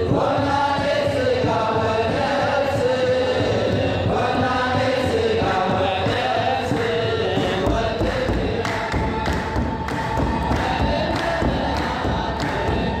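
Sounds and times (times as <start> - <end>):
choir singing a hymn: 0.0 - 13.0
hand drums beating: 0.0 - 13.0
hand clapping: 8.0 - 13.0.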